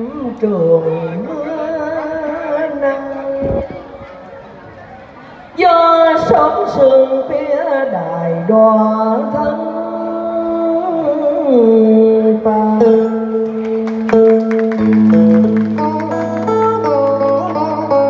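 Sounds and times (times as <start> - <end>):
woman singing: 0.0 - 3.7, 5.6 - 13.8
guitar plucked: 9.9 - 18.0.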